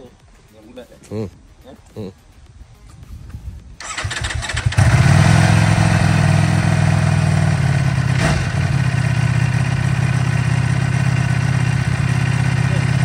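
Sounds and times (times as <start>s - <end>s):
motorcycle starter cranking: 3.8s - 5.3s
motorcycle engine idling: 3.8s - 13.0s.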